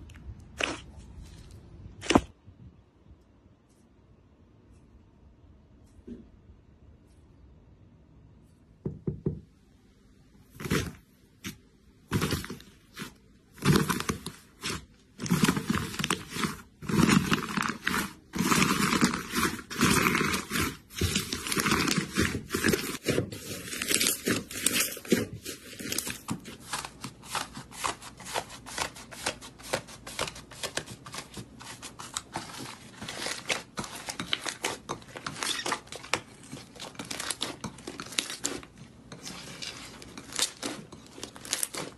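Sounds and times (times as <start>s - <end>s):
slime crackling and crunching: 10.5s - 41.9s.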